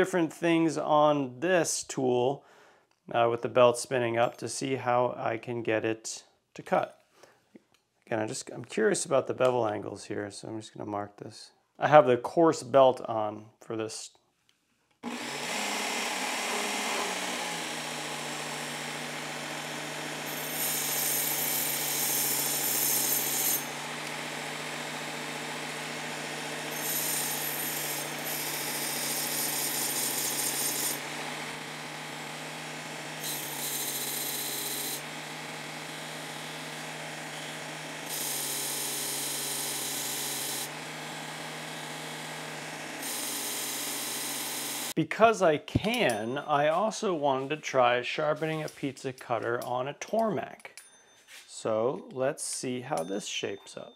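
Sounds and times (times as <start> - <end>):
belt sharpener motor hum: 15.0 - 45.0
steel wheel grinding on belt: 20.2 - 24.1, 26.6 - 31.8, 32.7 - 41.7.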